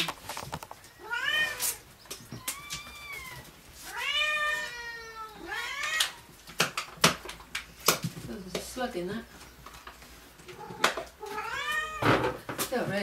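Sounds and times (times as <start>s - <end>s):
cat meowing: 1.0s - 6.3s, 10.5s - 12.2s.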